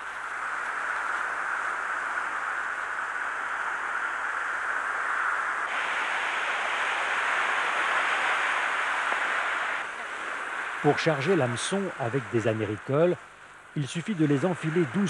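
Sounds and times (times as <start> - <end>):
surf breaking on shingle beach: 5.7 - 12.6.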